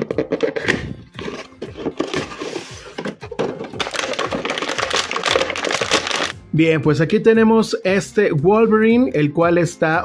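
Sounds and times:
plastic packaging crinkling: 0:01.2 - 0:06.3.

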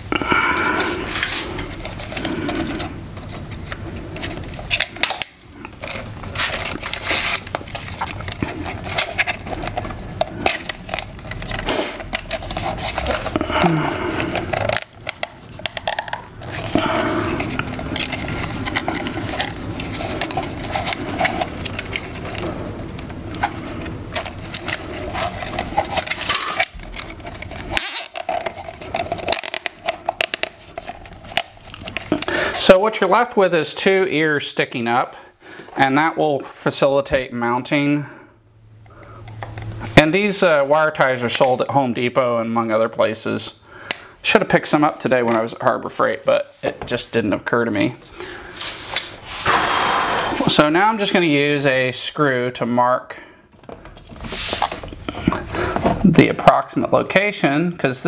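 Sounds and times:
zip ties clicking and rustling: 0:24.1 - 0:32.3.

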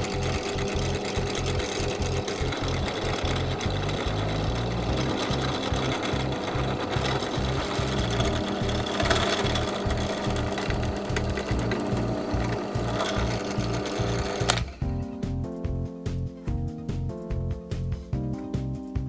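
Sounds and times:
drill press drilling plastic: 0:00.0 - 0:14.8
background music with steady beat: 0:00.2 - 0:19.0.

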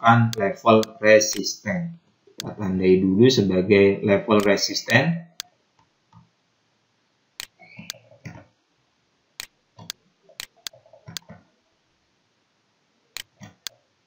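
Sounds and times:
computer mouse clicking: 0:00.3 - 0:01.5, 0:09.4 - 0:11.4.

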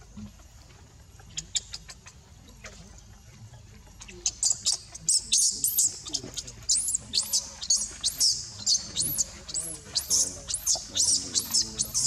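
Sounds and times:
baby monkey squealing: 0:01.3 - 0:02.2, 0:04.0 - 0:12.0.

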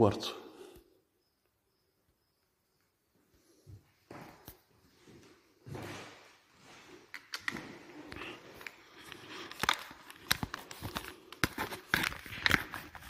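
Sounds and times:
footsteps on wooden floorboards: 0:03.7 - 0:07.0.

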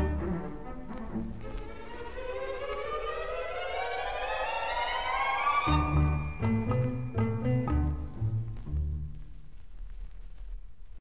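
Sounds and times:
orchestral easy-listening music: 0:00.0 - 0:09.2
plucked low notes: 0:05.7 - 0:09.3.

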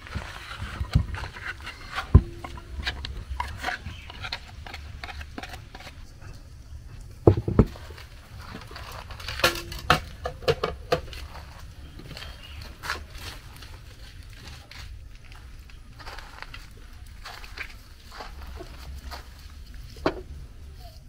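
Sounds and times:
utensils knocking and clinking: 0:00.8 - 0:05.6, 0:09.3 - 0:11.3.

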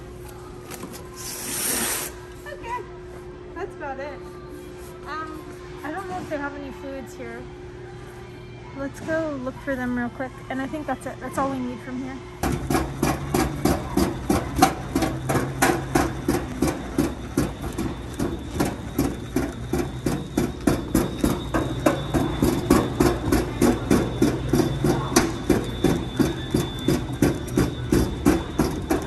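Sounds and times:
cart rolling over hard floor: 0:12.4 - 0:29.0
regular clacking of cart: 0:12.4 - 0:29.0.

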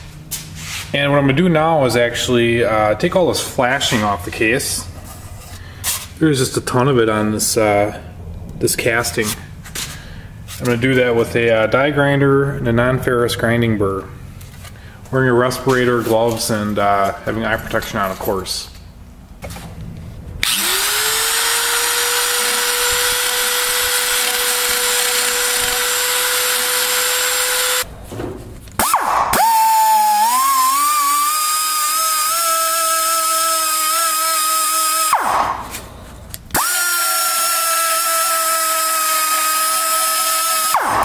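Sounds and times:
die grinder whining on metal: 0:20.4 - 0:27.9, 0:29.4 - 0:35.2, 0:36.5 - 0:41.0.

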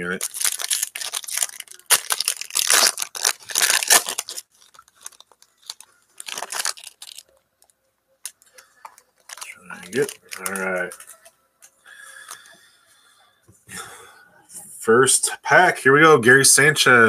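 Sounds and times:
foil wrapper tearing: 0:00.0 - 0:07.3, 0:08.2 - 0:11.2
wrapper rustling: 0:00.0 - 0:11.3.

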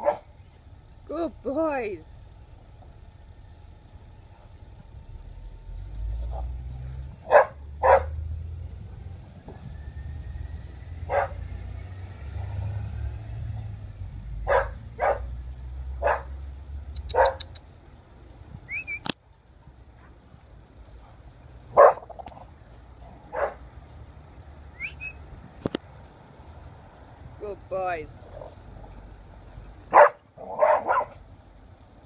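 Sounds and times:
dogs barking: 0:00.0 - 0:00.3, 0:07.2 - 0:08.2, 0:11.0 - 0:11.5, 0:14.4 - 0:15.4, 0:16.0 - 0:16.4, 0:17.1 - 0:17.5, 0:21.7 - 0:22.2, 0:23.3 - 0:23.6, 0:29.9 - 0:31.2.

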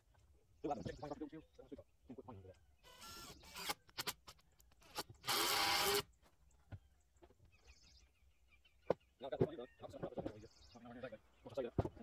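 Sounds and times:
knocks and clicks of handling wood: 0:11.7 - 0:12.0.

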